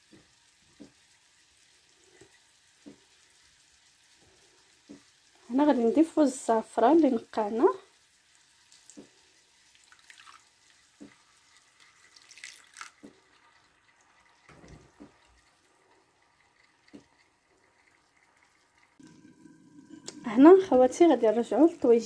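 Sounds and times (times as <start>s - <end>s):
liquid trickling and splashing: 8.2s - 21.6s.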